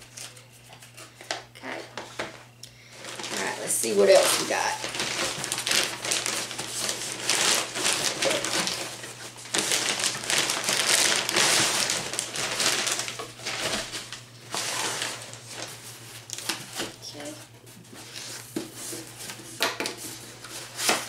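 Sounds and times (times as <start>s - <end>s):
plastic bag crinkling: 2.9s - 17.4s.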